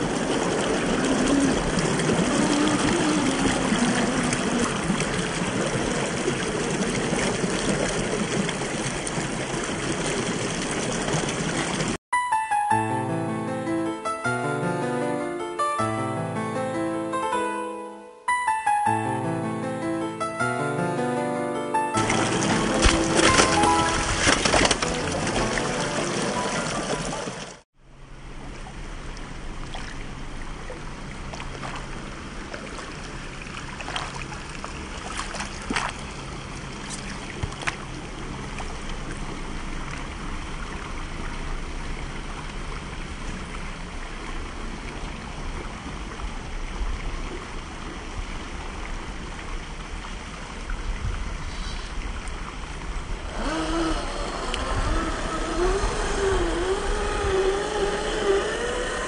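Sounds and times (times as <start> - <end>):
creek water running: 0.0 - 12.0, 22.0 - 59.0
electric motor whine: 53.2 - 59.0.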